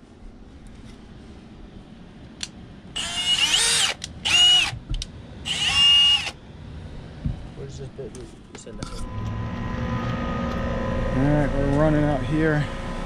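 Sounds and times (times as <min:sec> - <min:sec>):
power drill whining: 0:03.0 - 0:04.7, 0:05.5 - 0:06.4.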